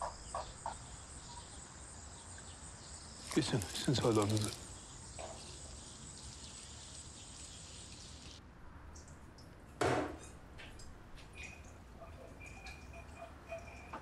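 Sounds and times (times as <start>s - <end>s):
insects chirping: 0.0s - 8.4s.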